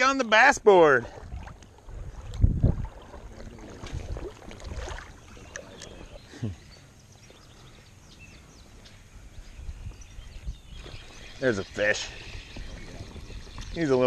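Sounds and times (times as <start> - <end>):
water lapping and sloshing: 0.0 - 8.8
wind on microphone: 1.0 - 6.6, 8.2 - 14.0.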